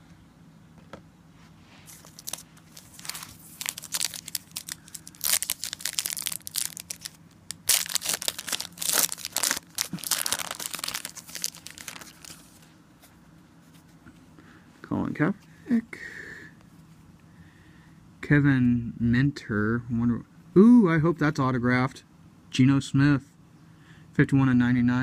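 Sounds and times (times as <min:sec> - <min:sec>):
foil wrapper tearing and crinkling: 0:01.9 - 0:12.6.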